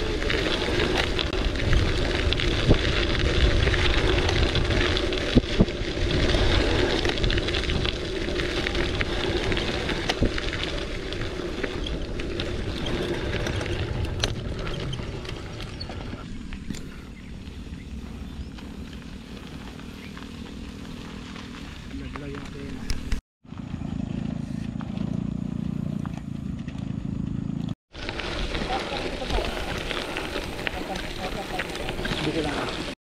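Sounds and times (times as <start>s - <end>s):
wind buffeting microphone: 0.0s - 23.2s
bike tyre rumble: 0.0s - 33.0s.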